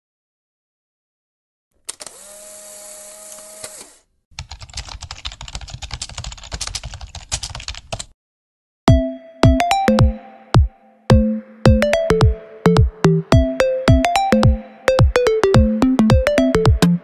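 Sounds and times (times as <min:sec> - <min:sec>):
computer keyboard typing clicks: 0:04.4 - 0:08.1.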